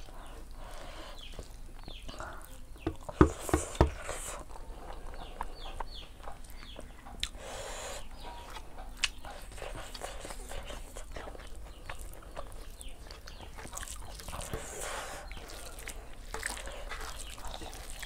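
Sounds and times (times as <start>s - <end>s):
chickens calling: 0.0s - 18.0s
sharp knocks: 2.8s - 4.0s.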